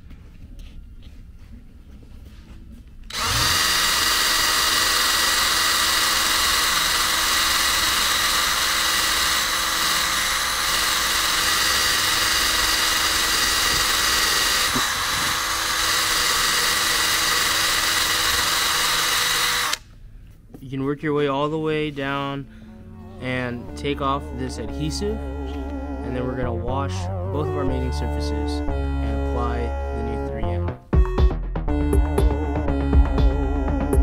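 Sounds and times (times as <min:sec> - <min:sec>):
drill spinning eraser on rubber: 0:03.1 - 0:19.8.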